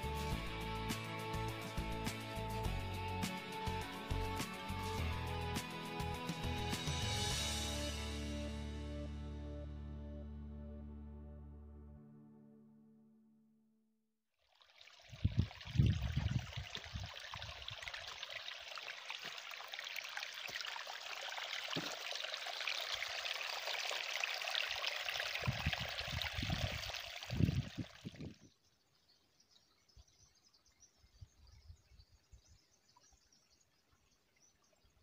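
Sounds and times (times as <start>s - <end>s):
stream trickling among rocks: 14.4s - 30.9s, 32.8s - 35.0s.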